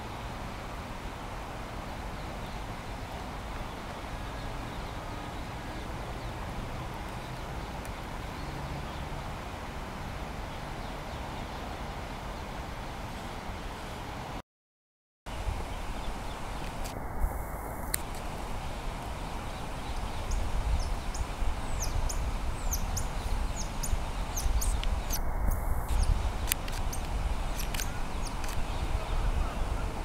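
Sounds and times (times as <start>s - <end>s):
even hiss: 15.3s - 30.0s.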